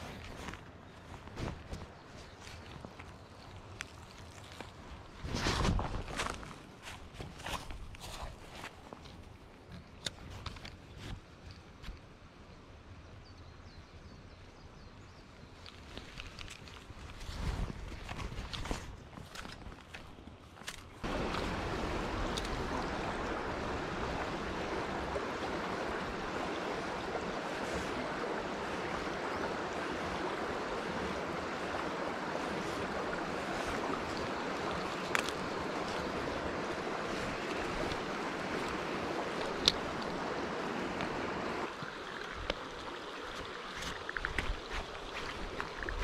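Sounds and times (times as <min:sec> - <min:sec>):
stream water flowing: 0:00.0 - 0:13.2, 0:15.2 - 0:46.0.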